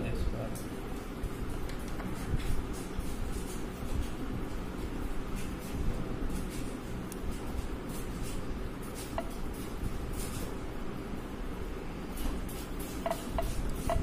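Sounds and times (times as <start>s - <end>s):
low room rumble: 0.0s - 14.0s.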